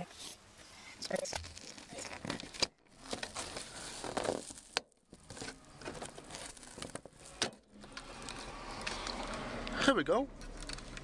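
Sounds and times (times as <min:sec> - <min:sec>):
plastic trim rustling and scraping: 0:01.1 - 0:09.7.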